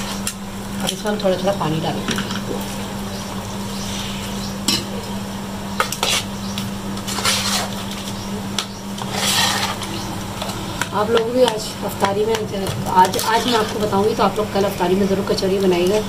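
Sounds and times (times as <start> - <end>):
spoon scraping steel bowl: 5.8 - 6.3, 7.0 - 7.9, 9.0 - 10.0, 13.0 - 13.9.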